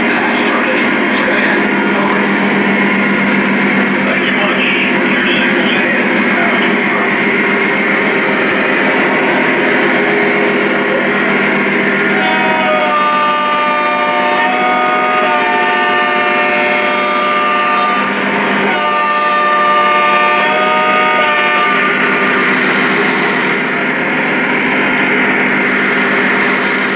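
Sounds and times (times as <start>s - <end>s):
diesel engine rumble: 0.0s - 13.6s, 21.4s - 26.9s.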